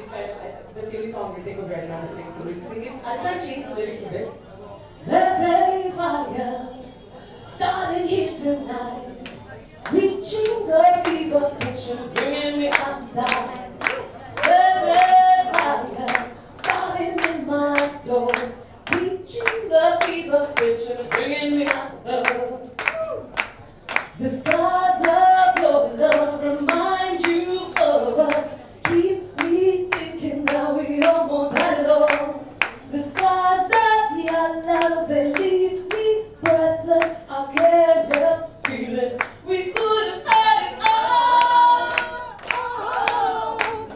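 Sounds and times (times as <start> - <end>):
woman singing into a microphone: 5.0 - 23.3, 23.9 - 43.9
group clapping along: 9.2 - 43.9.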